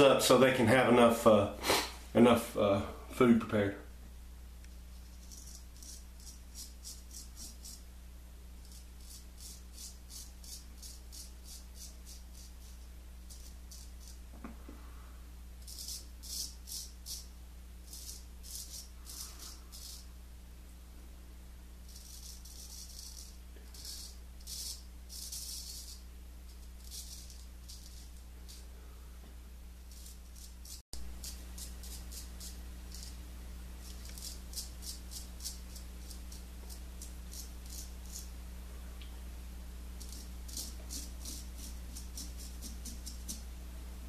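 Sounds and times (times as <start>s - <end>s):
steady low hum: 0.0s - 44.0s
razor scraping stubble: 5.0s - 7.9s, 8.6s - 14.3s, 17.9s - 20.1s, 21.9s - 28.7s, 29.9s - 33.2s, 33.8s - 38.4s, 40.0s - 43.5s.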